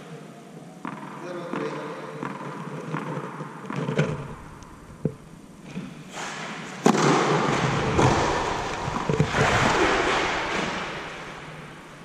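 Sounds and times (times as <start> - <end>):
tennis ball bouncing: 0.8 - 6.0, 6.8 - 9.4
racket striking ball: 0.8 - 10.8.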